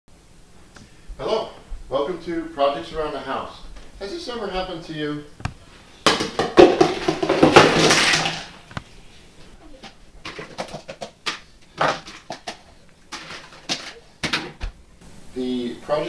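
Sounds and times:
plastic containers clattering on floor: 5.5 - 8.8, 9.8 - 14.8.

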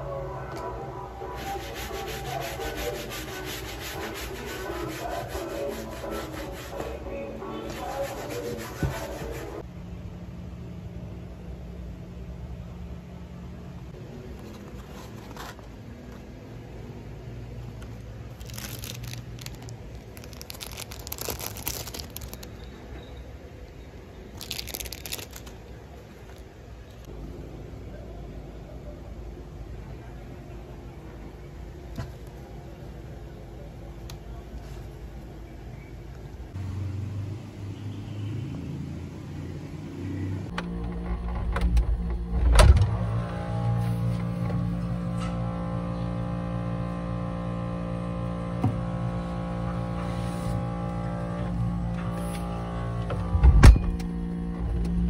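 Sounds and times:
plastic packaging crinkling: 18.3 - 22.7, 24.3 - 26.5
low steady hum: 40.3 - 55.0.

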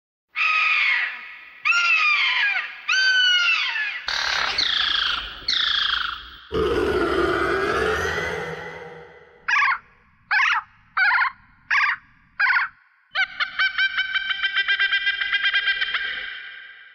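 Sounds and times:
shrill creature cries: 6.5 - 10.5.

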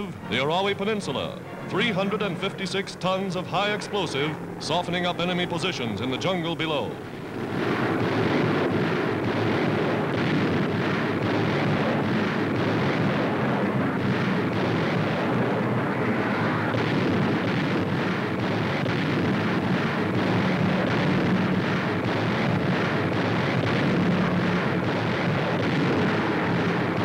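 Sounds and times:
rumbling roar of bombs bursting: 6.9 - 27.0.

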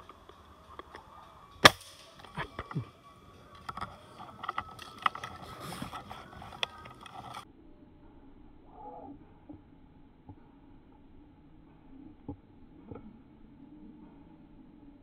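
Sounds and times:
gun handling clicks and knocks: 0.0 - 7.4
air rifle shot: 1.6 - 2.5.

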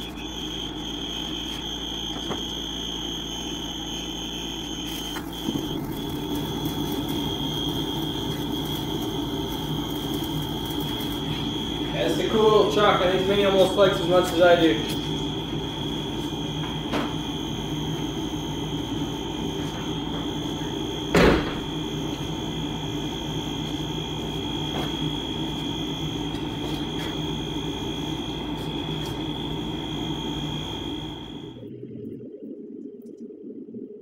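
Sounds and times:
high-pitched whine: 0.0 - 32.4
low hum: 0.0 - 34.0
truck door being shut: 21.1 - 21.7.

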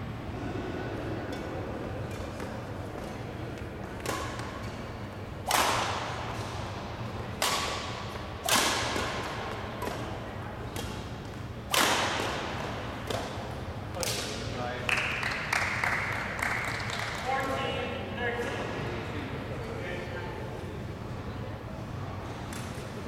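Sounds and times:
racket hitting shuttlecock: 2.0 - 4.8, 5.4 - 14.4.

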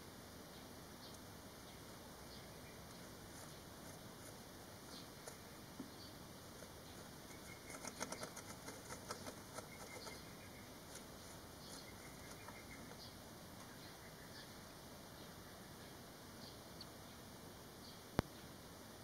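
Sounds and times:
nestlings squeaking: 2.6 - 13.1.

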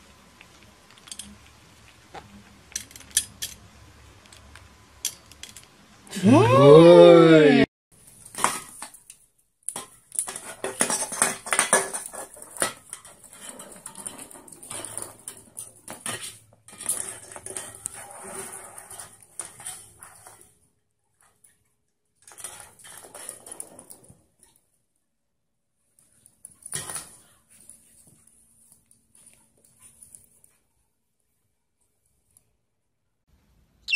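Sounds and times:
drink can rolling on wooden floor: 10.2 - 20.6, 22.3 - 24.3.

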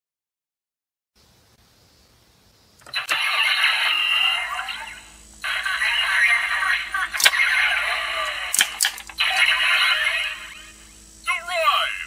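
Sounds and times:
toy electronic sound effects: 2.8 - 12.0
voice announcements from toy speaker: 2.9 - 8.5, 9.2 - 12.0
plastic clicks: 7.2 - 7.4, 8.5 - 9.2.

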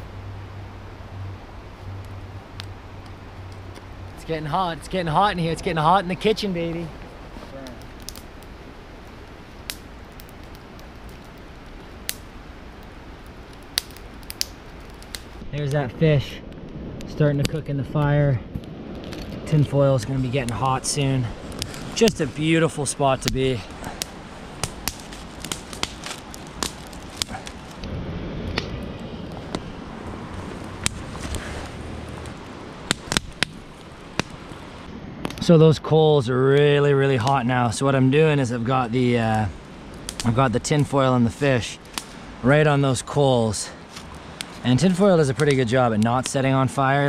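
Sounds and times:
river flowing: 0.0 - 15.4, 19.7 - 34.9
campfire crackling: 0.0 - 47.0
sharp fire pops: 2.0 - 15.6, 16.4 - 35.5, 38.7 - 43.1, 43.7 - 47.0.

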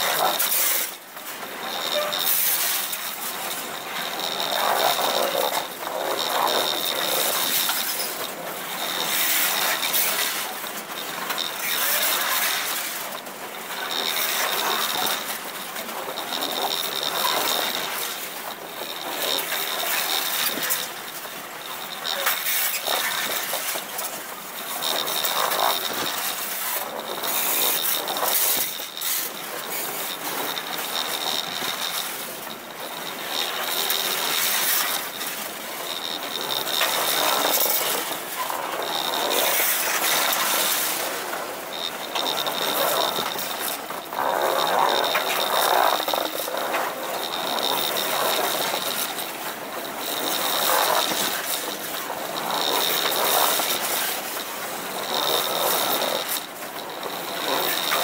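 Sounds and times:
high wheel squeal: 1.6 - 5.7.

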